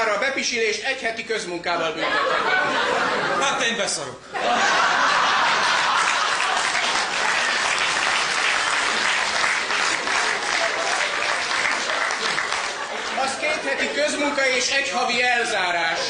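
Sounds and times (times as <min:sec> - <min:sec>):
audience applauding: 0:04.8 - 0:13.9.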